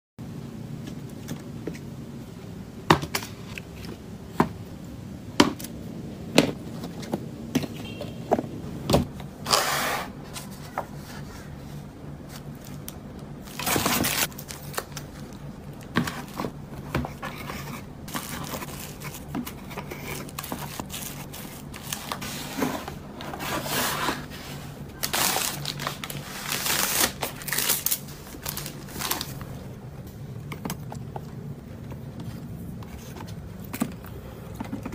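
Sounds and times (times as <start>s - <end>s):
steady low hum: 0.2s - 34.9s
plastic bags crinkling: 12.5s - 22.3s, 24.9s - 29.6s.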